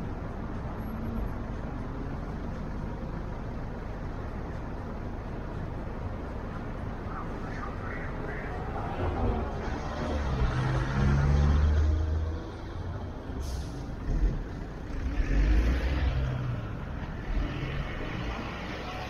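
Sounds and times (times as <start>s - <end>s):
engine and tyre rumble: 0.0s - 19.0s
short hiss: 13.4s - 13.9s.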